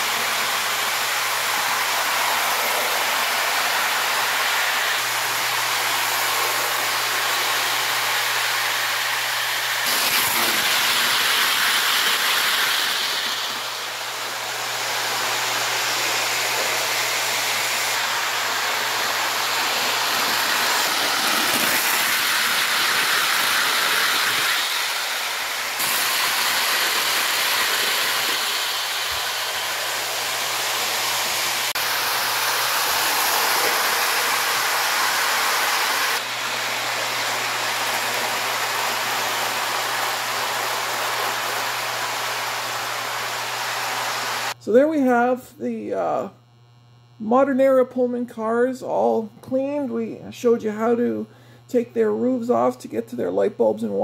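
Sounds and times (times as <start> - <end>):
model train rolling hiss: 0.0 - 44.6.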